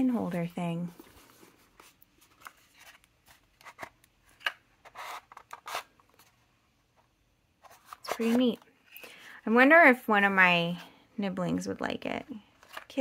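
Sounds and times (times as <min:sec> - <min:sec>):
cardboard scraping and rubbing: 0:04.8 - 0:06.3, 0:07.6 - 0:08.6.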